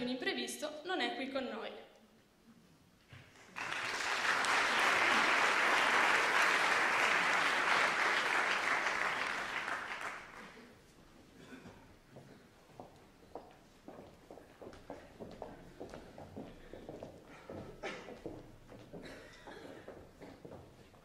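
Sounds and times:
audience applauding: 0:03.3 - 0:10.7.

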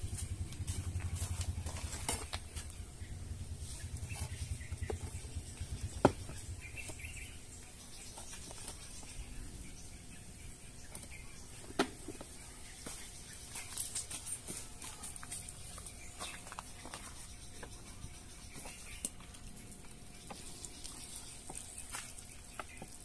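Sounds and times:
trowel scraping and patting soil: 0:00.0 - 0:02.8, 0:11.6 - 0:23.0.

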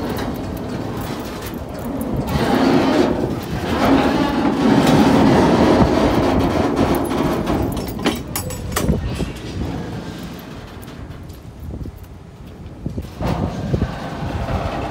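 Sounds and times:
train wheels rumbling on track: 0:00.0 - 0:14.9
sharp metallic clanks: 0:06.7 - 0:09.5.

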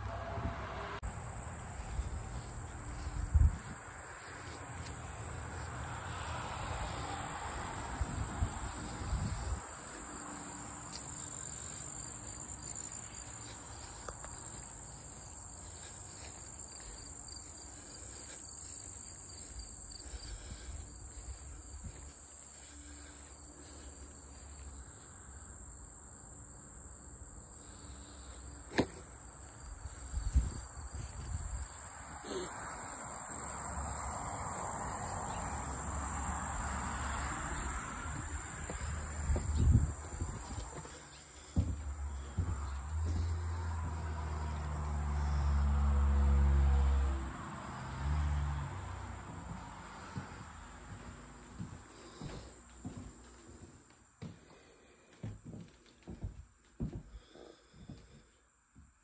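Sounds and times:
high-pitched insect chorus: 0:01.0 - 0:47.1.

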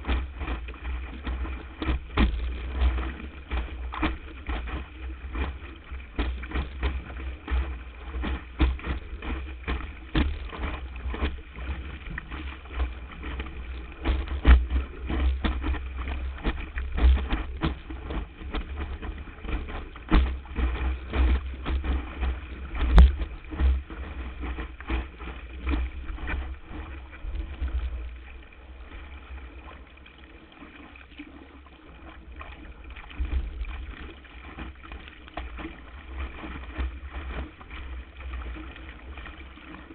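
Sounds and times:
wind on microphone: 0:00.0 - 0:29.8
rushing water: 0:00.0 - 0:39.9
hull slapping on chop: 0:01.2 - 0:27.0.

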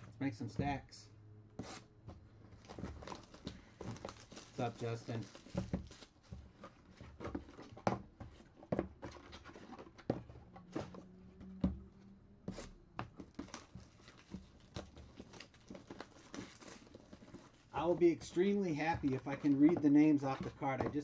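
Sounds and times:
cardboard boxes knocking on table: 0:05.4 - 0:11.9.

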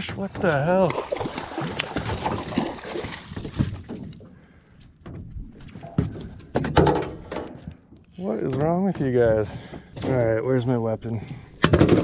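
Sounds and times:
water splashing: 0:00.0 - 0:04.2.

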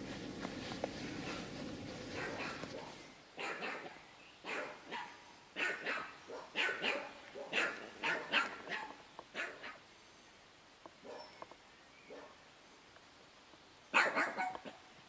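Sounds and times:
dog barking: 0:02.1 - 0:09.8, 0:11.0 - 0:11.4, 0:12.1 - 0:12.4, 0:13.9 - 0:14.9.

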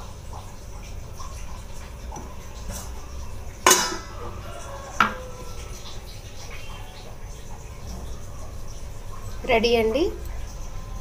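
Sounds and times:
steel lid clanging on a pan: 0:03.6 - 0:04.2.

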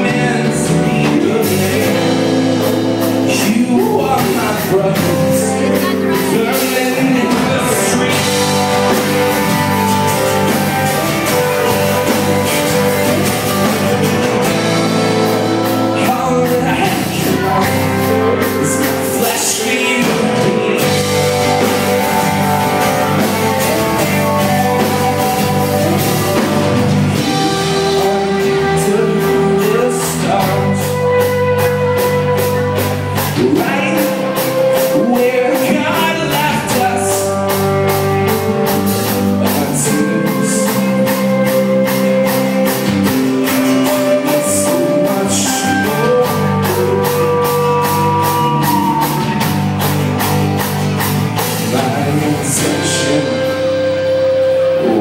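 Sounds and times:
rock band playing: 0:00.0 - 0:55.0.

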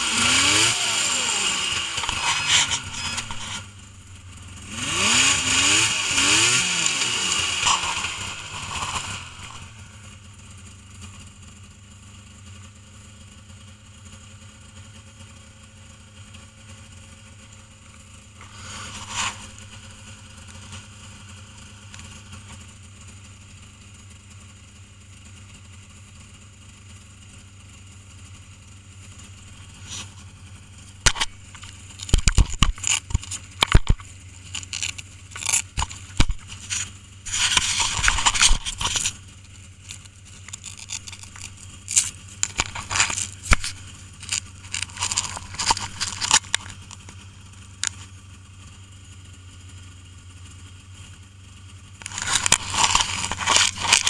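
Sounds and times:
snowmobile engine idling: 0:00.0 - 0:54.0
knocks and scrapes at microphone: 0:02.0 - 0:03.7, 0:18.4 - 0:19.9, 0:31.1 - 0:39.2, 0:39.9 - 0:47.2, 0:52.0 - 0:54.0.

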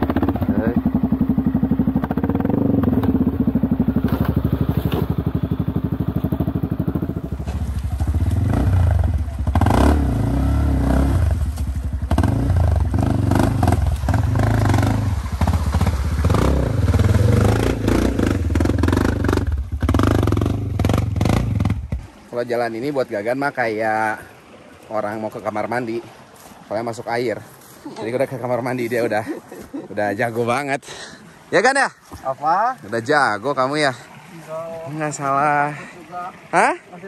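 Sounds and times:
motorcycle engine revving: 0:00.0 - 0:22.1.

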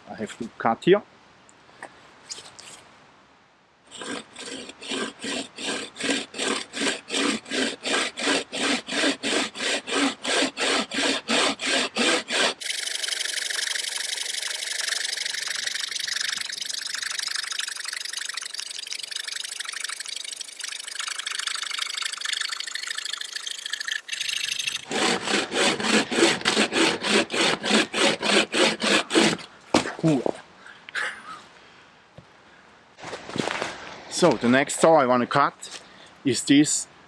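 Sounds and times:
bowsaw cutting wood: 0:03.9 - 0:30.0.

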